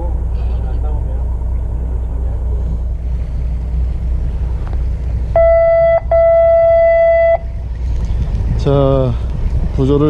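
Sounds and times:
low rumble: 0.0s - 10.0s
buzzer long beeps: 5.4s - 7.4s.

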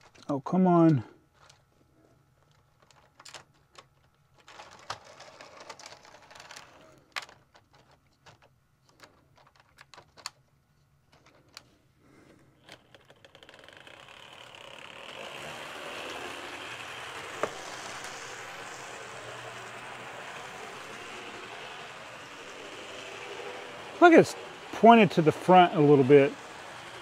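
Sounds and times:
model train whirring rattle: 4.4s - 7.7s, 12.6s - 27.0s.

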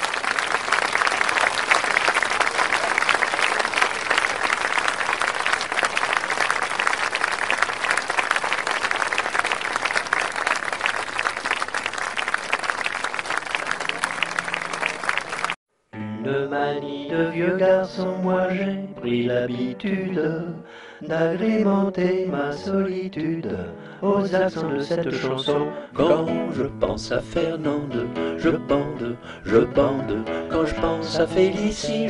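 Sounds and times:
audience applauding: 0.0s - 15.6s.

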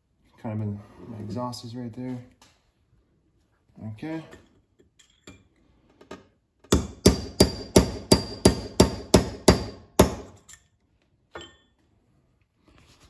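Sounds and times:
hammer striking metal punch: 6.7s - 10.4s.

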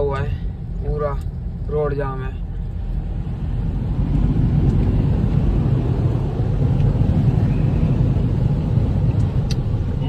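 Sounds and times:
water surging against car: 2.8s - 10.0s.

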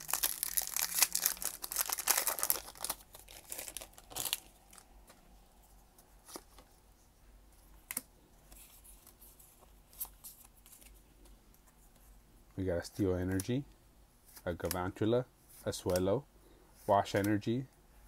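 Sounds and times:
foil pack crinkling and tearing: 0.0s - 4.8s
cards rustling: 0.0s - 5.1s.

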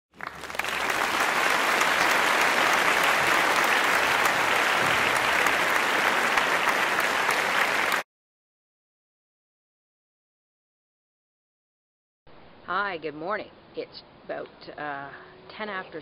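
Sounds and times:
audience applauding: 0.1s - 8.0s.

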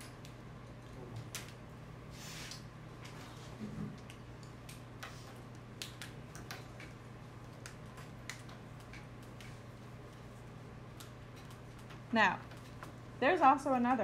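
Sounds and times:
steady low hum: 0.0s - 14.0s
faint clicks and taps: 3.9s - 13.0s.

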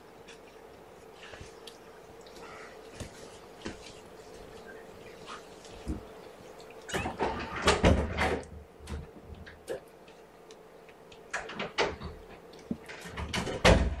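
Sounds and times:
faint steady hum: 0.0s - 14.0s
door knocks and clatters: 7.0s - 8.4s, 13.0s - 14.0s.

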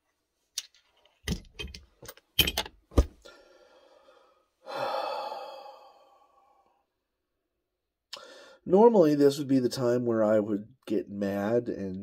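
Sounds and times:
person sighing heavily: 3.2s - 6.8s, 8.1s - 8.6s.

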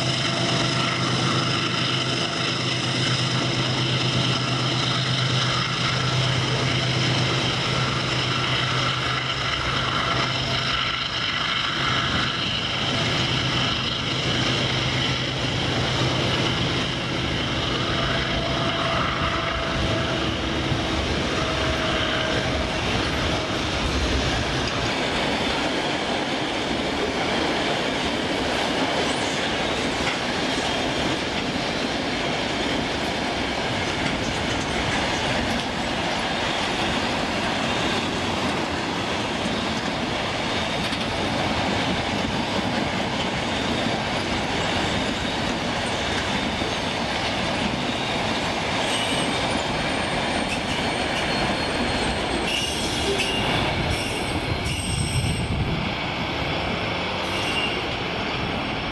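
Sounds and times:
faint high wheel squeals: 0.0s - 23.6s, 43.2s - 55.7s, 57.2s - 58.3s
train wheels rumbling and rattling: 0.0s - 58.9s.

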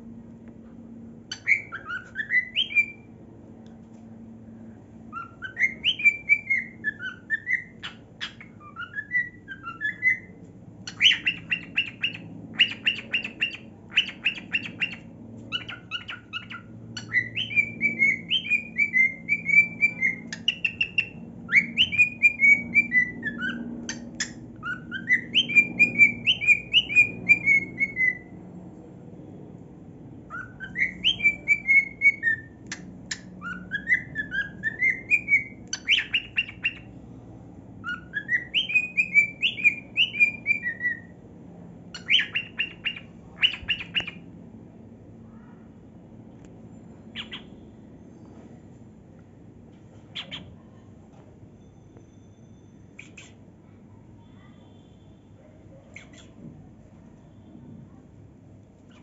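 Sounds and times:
cockatiel chirping and whistling: 1.3s - 3.1s, 5.1s - 28.3s, 30.3s - 36.9s, 37.8s - 41.1s, 42.0s - 44.2s, 47.1s - 47.6s, 50.2s - 50.5s, 53.0s - 53.4s.

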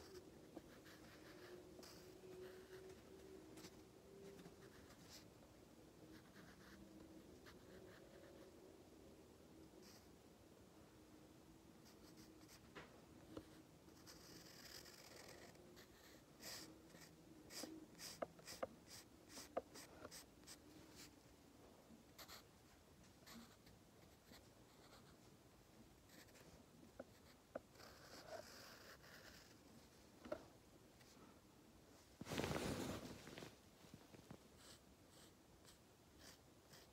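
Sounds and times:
pencil scratching on paper: 0.0s - 5.3s, 6.1s - 8.5s, 13.4s - 21.1s, 26.1s - 29.6s, 34.6s - 36.9s.

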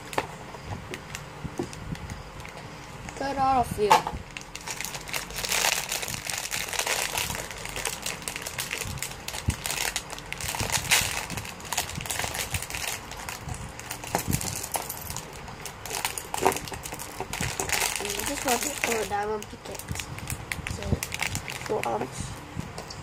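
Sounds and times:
plastic bag crinkling: 4.2s - 22.3s.

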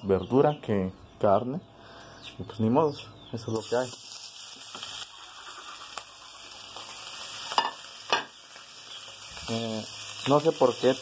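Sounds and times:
food sizzling in frying pan: 3.6s - 11.0s.

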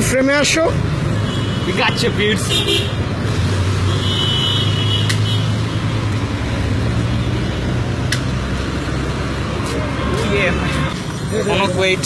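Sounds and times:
traffic rumble: 0.0s - 12.0s
sharp clicks: 5.0s - 5.3s.

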